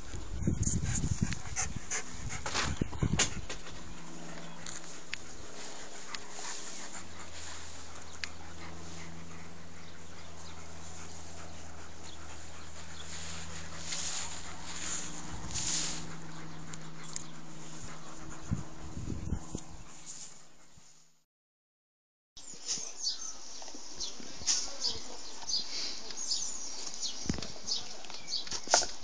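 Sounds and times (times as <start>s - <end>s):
dog panting: 0.0s - 20.7s
steady low hum: 0.0s - 20.9s.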